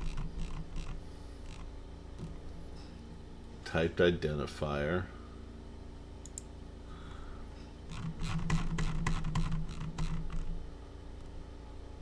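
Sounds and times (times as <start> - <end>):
keyboard and mouse clicks: 6.2 - 6.5, 7.9 - 10.5.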